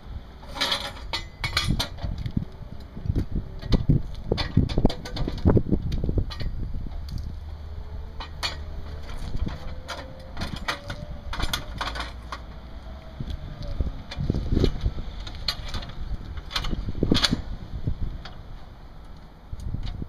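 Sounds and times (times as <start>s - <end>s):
metal wheel clamp clanking: 0.4s - 2.4s, 3.6s - 7.3s, 8.1s - 12.6s, 13.4s - 17.6s.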